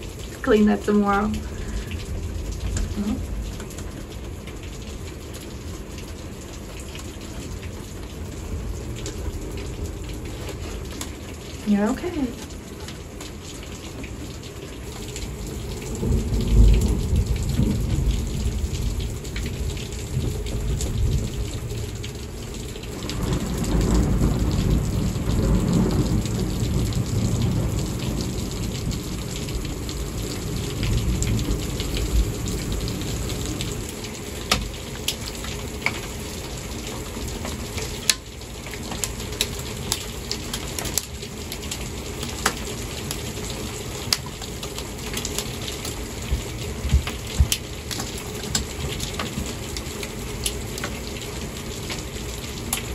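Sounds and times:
thunder rumbling: 0:00.0 - 0:05.1, 0:15.5 - 0:34.8
heavy rain pouring: 0:00.0 - 0:52.9.

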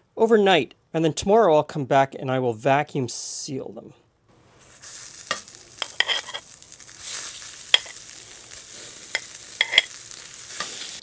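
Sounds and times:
sausages sizzling in a skillet: 0:04.6 - 0:11.0
metal tongs clicking on pan: 0:05.3 - 0:06.4, 0:07.7 - 0:08.1, 0:09.1 - 0:11.0.

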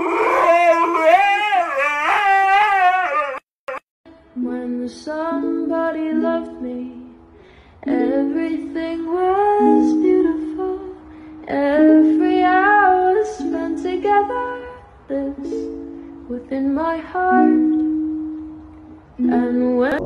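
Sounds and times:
woman singing: 0:04.1 - 0:07.2, 0:07.8 - 0:18.1, 0:19.2 - 0:20.0.

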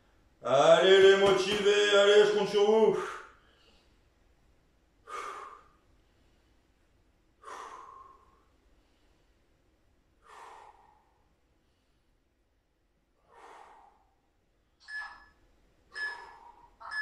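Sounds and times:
man breathing sharply: 0:02.9 - 0:04.1, 0:05.0 - 0:06.7, 0:07.3 - 0:12.3, 0:13.1 - 0:15.1, 0:15.8 - 0:16.9
short electronic timer beeps: 0:14.8 - 0:15.4, 0:16.0 - 0:17.0.

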